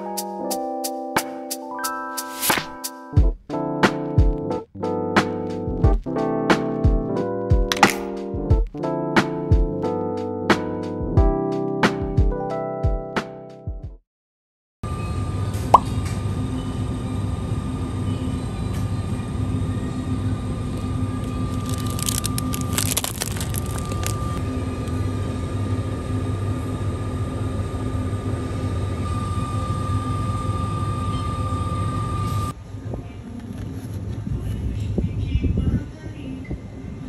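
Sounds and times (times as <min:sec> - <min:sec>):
brief crackling rustle: 0:21.2 - 0:24.4.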